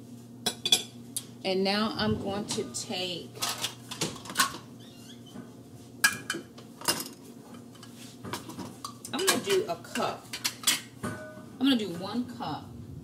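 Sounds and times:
utensils and dishes clinking: 0:02.4 - 0:04.6, 0:06.0 - 0:11.4.

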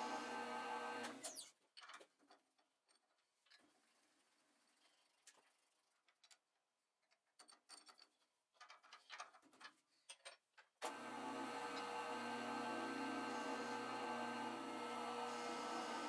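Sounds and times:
metal parts clicking and tapping: 0:06.0 - 0:10.7
multi-tone machine hum: 0:10.9 - 0:16.0.

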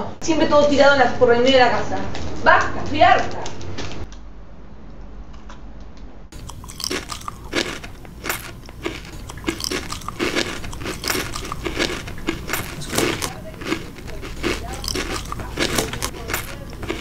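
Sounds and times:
crisp chocolate bar crunches: 0:06.4 - 0:17.0
dull chewing thumps: 0:06.4 - 0:17.0.

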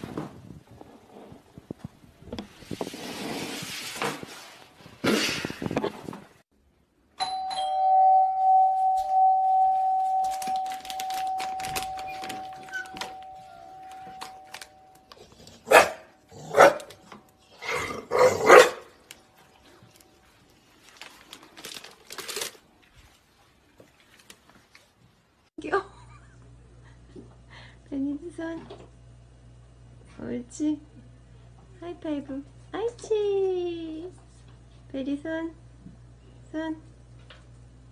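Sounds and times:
two-tone doorbell chime: 0:07.2 - 0:15.1
dog barking: 0:15.7 - 0:16.9, 0:18.1 - 0:18.9.

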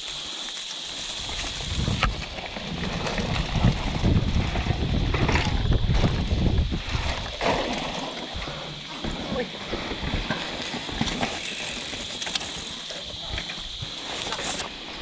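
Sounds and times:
wind buffeting microphone: 0:01.2 - 0:07.4
bike knocks and rattles: 0:01.2 - 0:14.6.

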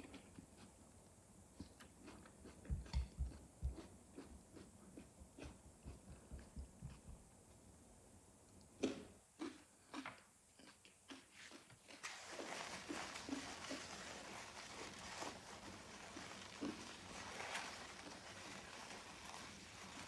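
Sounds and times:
paper napkin rustling: 0:12.0 - 0:20.0.

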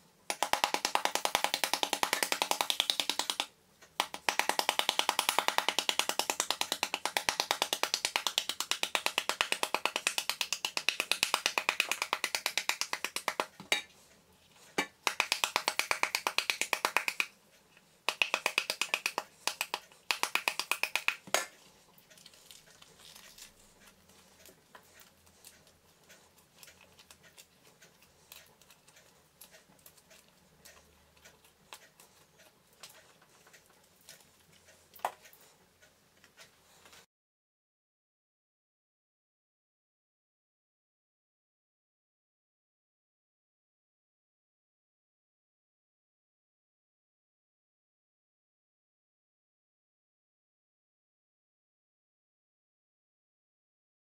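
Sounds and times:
seeds ticking into pan: 0:00.3 - 0:13.9
wooden spoon beating pomegranate: 0:00.3 - 0:14.0, 0:14.8 - 0:17.3, 0:18.1 - 0:30.3.

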